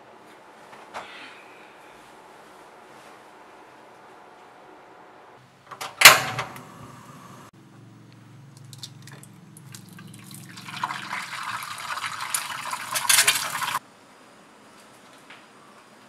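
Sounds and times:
egg sizzling in oil: 8.7s - 13.8s.

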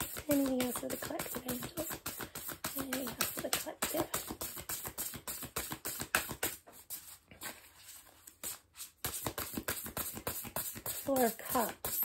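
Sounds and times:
cards being shuffled: 0.0s - 12.0s.

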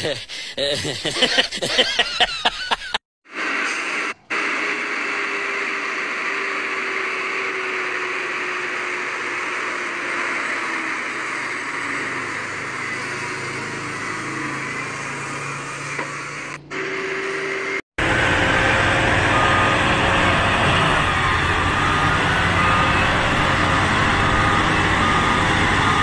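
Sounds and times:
truck running noise hiss: 3.3s - 26.0s
truck engine low note: 4.4s - 26.0s.

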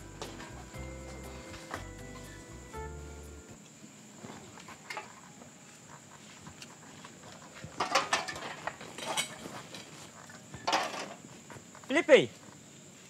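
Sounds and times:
background music: 0.0s - 3.6s
cans and bottles clattering: 7.8s - 9.9s, 10.6s - 11.2s.

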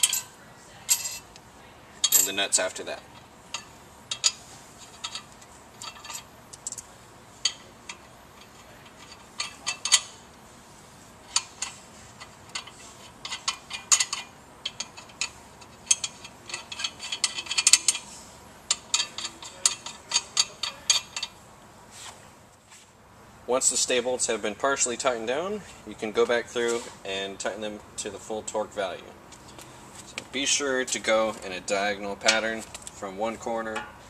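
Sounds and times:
metal nuts clicking on threads: 0.0s - 0.3s, 0.9s - 1.4s, 2.0s - 10.2s, 11.3s - 18.1s, 18.7s - 21.4s.

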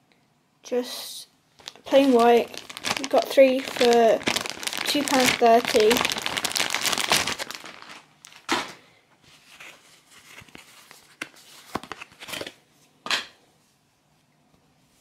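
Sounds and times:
packaging rustling and crinkling: 1.6s - 12.6s.

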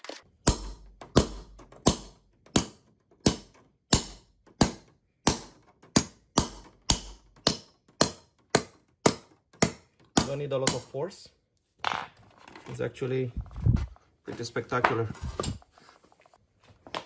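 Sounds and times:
hammer tapping metal: 0.4s - 11.0s.

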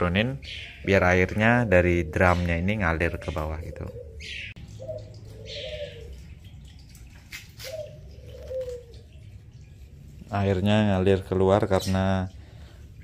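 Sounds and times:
dove cooing: 1.4s - 6.4s, 7.6s - 9.4s
water running from drain hose: 4.6s - 13.0s.

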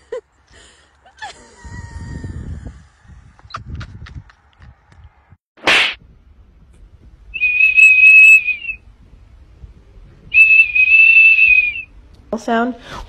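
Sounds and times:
shrill plastic whistle: 7.4s - 8.8s, 10.3s - 11.9s.

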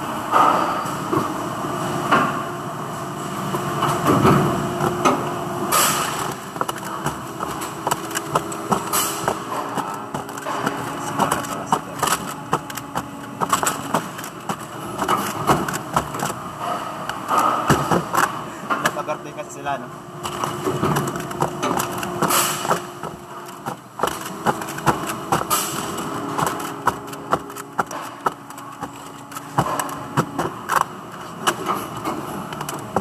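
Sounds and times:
factory machinery hum: 0.0s - 33.0s
plastic parts clicking on workbench: 5.8s - 16.4s, 20.2s - 33.0s.

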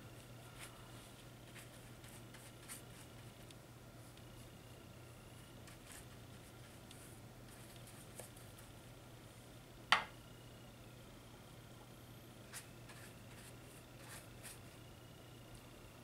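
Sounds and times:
low steady hum: 0.0s - 16.0s
paintbrush brushing on paper: 0.2s - 3.5s, 5.6s - 8.6s, 12.5s - 14.7s.

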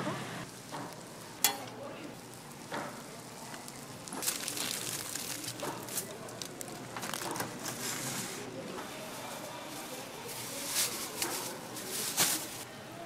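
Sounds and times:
aluminium foil crinkling: 0.5s - 12.6s.

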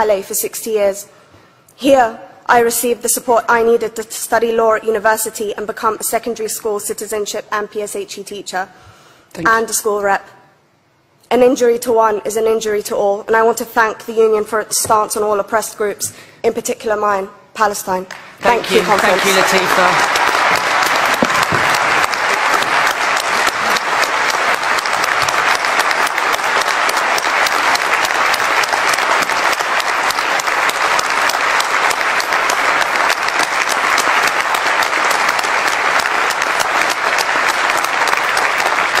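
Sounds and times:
audience applauding: 18.1s - 39.0s.

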